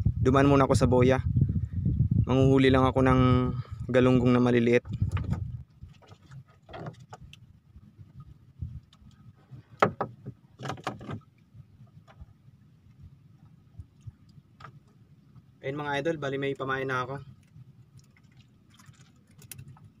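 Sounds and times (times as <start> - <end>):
low steady rumble: 0.0 - 6.5, 11.2 - 20.0
knocks and taps against hull: 4.9 - 5.5, 9.6 - 11.2.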